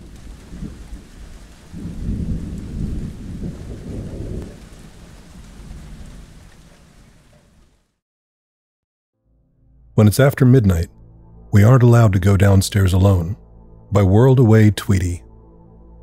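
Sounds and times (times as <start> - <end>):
thunder rolling: 0.0 - 7.7
steady rain: 0.0 - 8.0.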